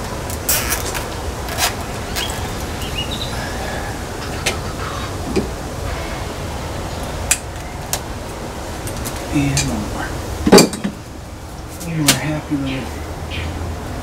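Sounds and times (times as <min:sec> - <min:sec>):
clicks of wires and zip ties: 0:00.4 - 0:02.4.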